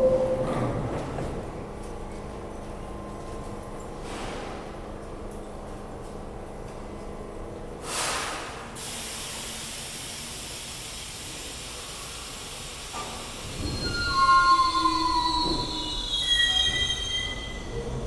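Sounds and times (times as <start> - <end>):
subway train idling hum: 0.0 - 18.0
air hiss burst: 7.8 - 10.1
steel wheels squealing: 13.2 - 18.0.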